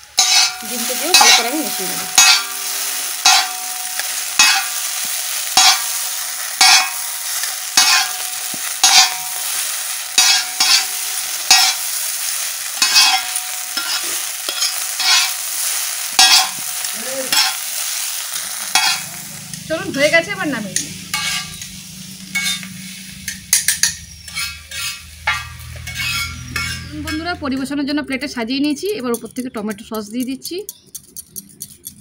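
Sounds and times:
noodles sizzling on iron pan: 0:00.0 - 0:31.1
spatula clacking against pan: 0:00.2 - 0:01.5, 0:02.1 - 0:02.6, 0:03.2 - 0:05.9, 0:06.6 - 0:07.1, 0:07.8 - 0:09.4, 0:10.2 - 0:10.9, 0:11.5 - 0:11.8, 0:12.8 - 0:15.4, 0:16.2 - 0:16.6, 0:17.3 - 0:17.6, 0:23.3 - 0:27.7, 0:28.6 - 0:32.0.

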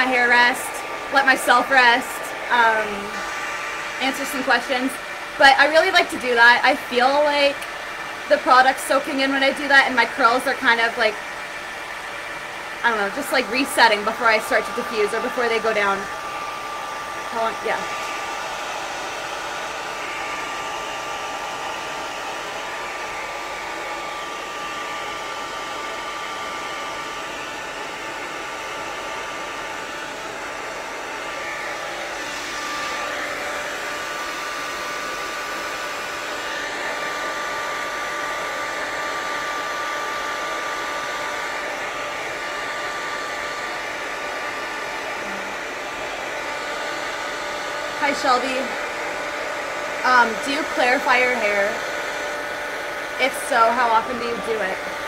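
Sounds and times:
hair dryer blowing: 0:00.0 - 0:55.0.

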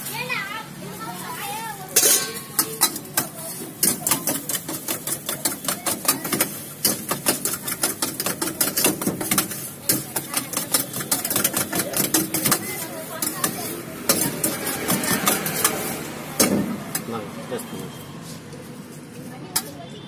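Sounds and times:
metal utensil clinking on steel vessel: 0:01.9 - 0:16.0.

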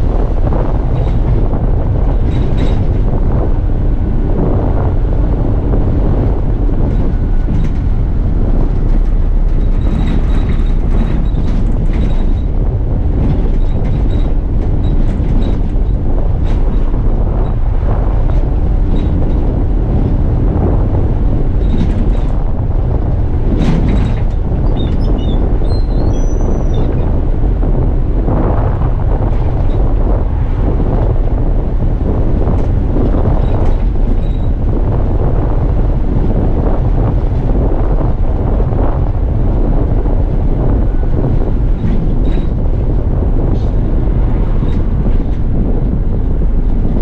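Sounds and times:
bodywork clicks and rattles: 0:00.0 - 0:47.0
bus engine and road rumble: 0:00.0 - 0:47.0.

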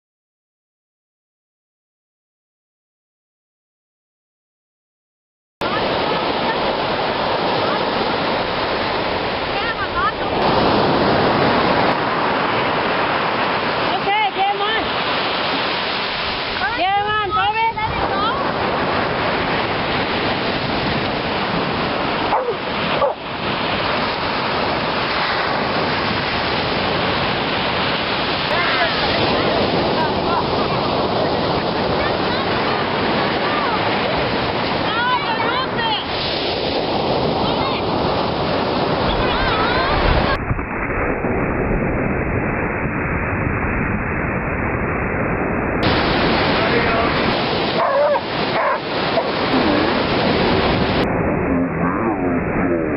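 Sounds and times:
ocean surf breaking: 0:05.6 - 0:52.9
dog barking: 0:22.3 - 0:23.2, 0:47.7 - 0:49.9.

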